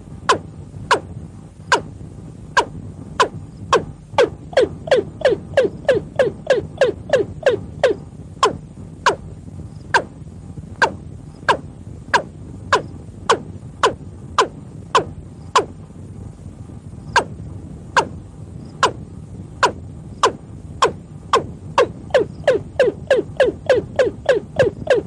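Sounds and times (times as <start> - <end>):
bird calling sharp falling notes: 4.2 - 9.2, 21.8 - 25.0.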